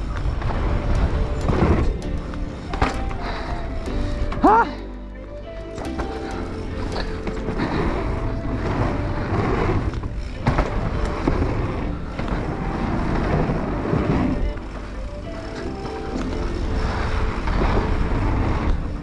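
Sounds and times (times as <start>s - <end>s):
bike tyres rolling and rattling: 0.0s - 19.0s
bike knocking over wooden boardwalk: 5.9s - 14.5s.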